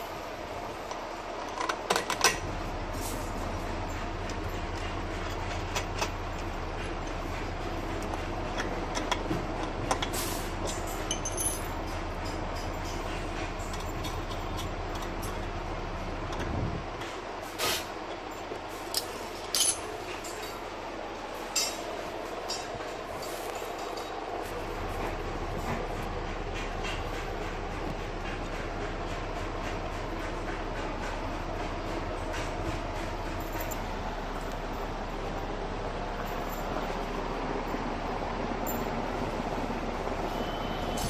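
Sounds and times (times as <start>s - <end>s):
low background hum: 0.0s - 41.0s
steady background rumble: 0.0s - 41.0s
metal bolt clicks and clinks: 9.9s - 15.4s, 18.3s - 20.6s.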